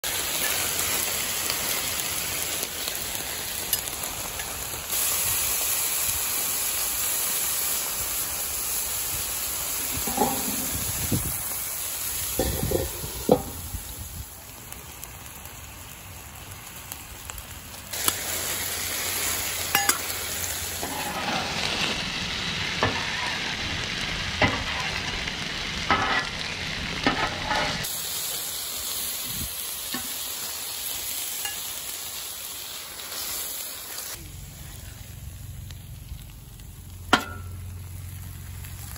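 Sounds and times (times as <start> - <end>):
food sizzling on a griddle: 0.0 - 38.9
metal spatula scraping and tapping: 10.0 - 10.8, 19.7 - 20.0, 27.0 - 27.9.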